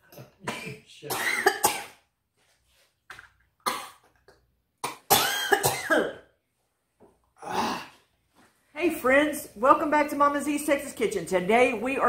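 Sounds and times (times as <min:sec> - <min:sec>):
woman coughing hard: 0:00.5 - 0:02.0, 0:03.7 - 0:04.0, 0:04.8 - 0:06.3.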